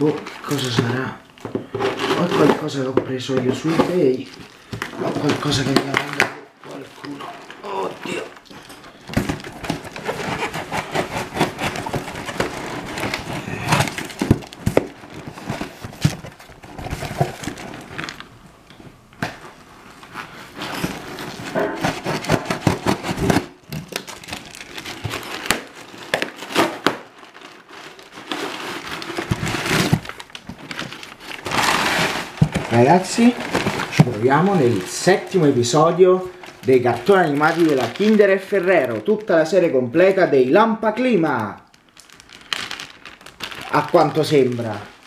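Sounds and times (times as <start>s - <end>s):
cardboard parcel crinkling and knocking: 0.0s - 45.0s.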